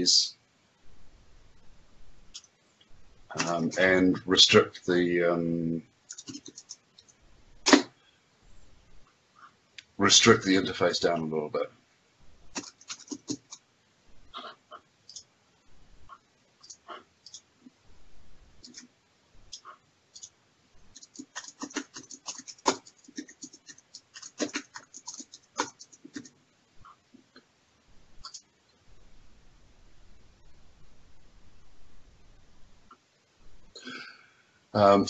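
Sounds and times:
computer keyboard typing: 6.1s - 7.8s, 12.5s - 13.6s, 16.6s - 17.5s, 18.6s - 18.9s, 19.5s - 26.4s, 28.2s - 28.5s.

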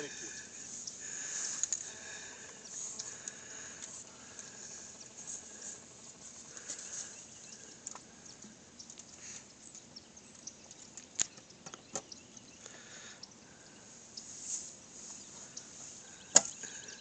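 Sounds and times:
faint clicks and ticks: 0.8s - 5.2s, 6.5s - 13.8s.

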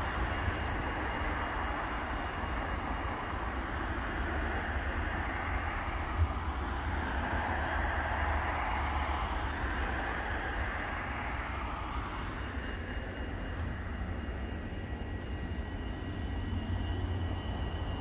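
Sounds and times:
tram rumbling in motion: 0.0s - 18.0s.

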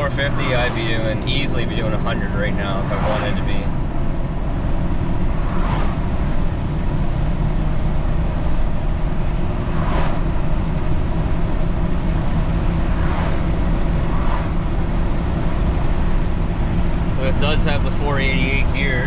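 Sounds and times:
diesel engine rumble: 0.0s - 19.0s
road noise: 0.0s - 19.0s
brief whooshes: 5.4s - 6.0s, 9.7s - 10.2s, 12.9s - 13.4s, 14.1s - 14.5s.

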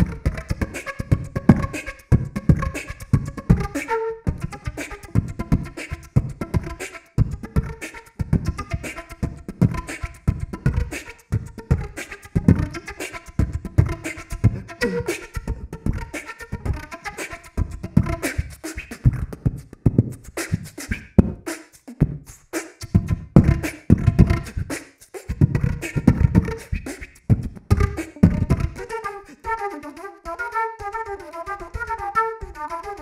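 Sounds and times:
quick flute notes: 0.0s - 19.2s, 23.4s - 33.0s
breathy flute tones: 0.0s - 19.3s, 25.6s - 33.0s
beatbox through flute: 0.0s - 33.0s.

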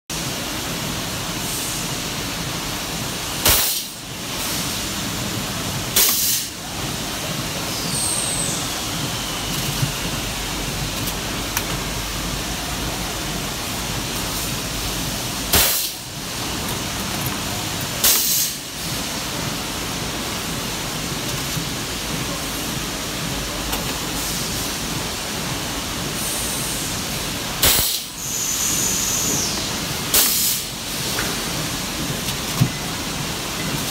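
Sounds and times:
machine and workshop noise: 0.1s - 33.9s
welding machine sharp bursts: 3.4s - 4.0s, 15.5s - 16.0s, 27.6s - 28.1s.

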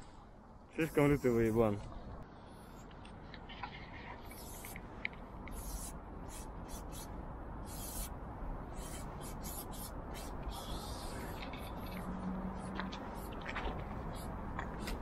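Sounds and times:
spray paint can hissing: 4.2s - 4.8s, 5.5s - 8.1s, 8.7s - 11.8s.

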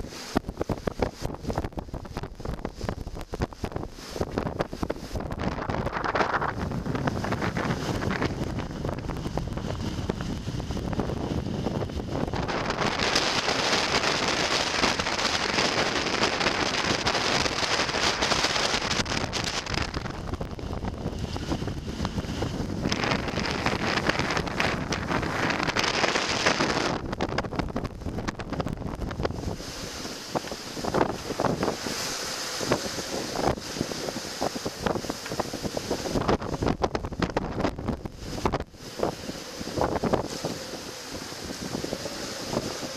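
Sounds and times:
gale wind buffeting microphone: 0.0s - 42.9s
waves rushing past hull: 0.0s - 42.9s.

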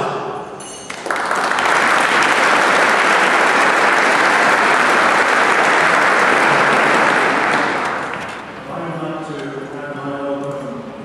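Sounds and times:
audience applauding: 0.9s - 8.6s.

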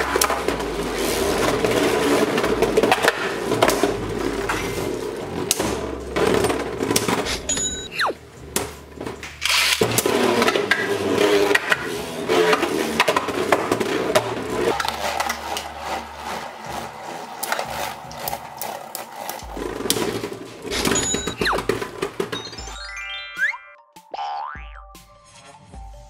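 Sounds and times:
spinning tops scraping: 0.0s - 23.0s
spinning tops clashing: 17.2s - 23.1s.

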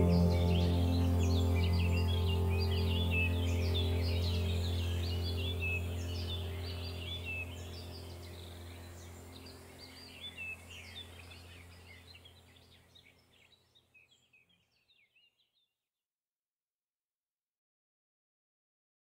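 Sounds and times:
low steady hum: 0.0s - 13.4s
birds chirping: 0.0s - 15.5s.

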